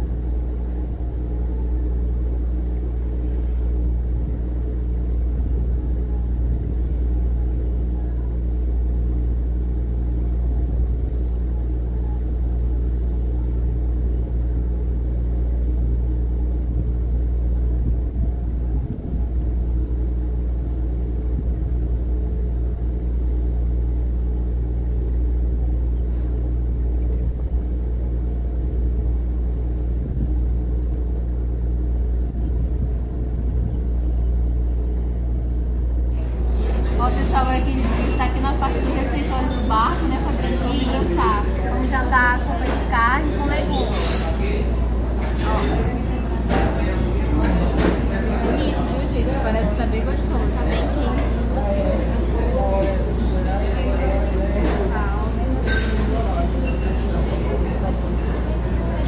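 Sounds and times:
boat diesel engine droning: 0:00.0 - 0:55.6.

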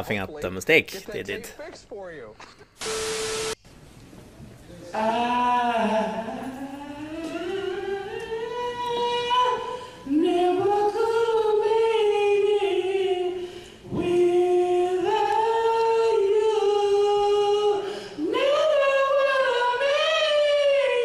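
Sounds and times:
woman singing a cappella: 0:04.9 - 0:21.0.

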